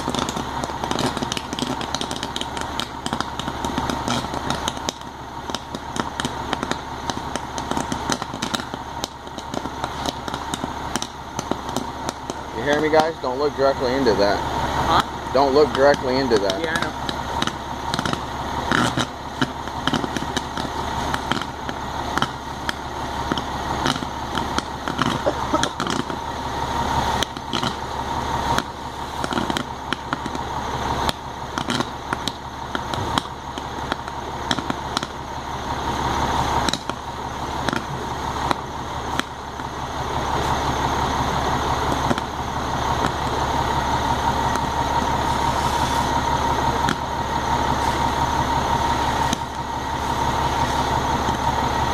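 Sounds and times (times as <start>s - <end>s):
engine drone: 0.0s - 51.9s
fire crackling and popping: 0.0s - 51.9s
power wires arcing: 0.0s - 51.9s.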